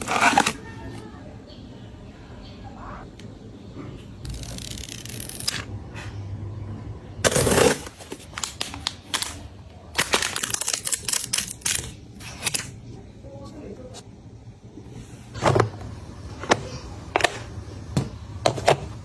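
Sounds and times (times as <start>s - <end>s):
packaging clicks and crinkles: 7.6s - 12.8s.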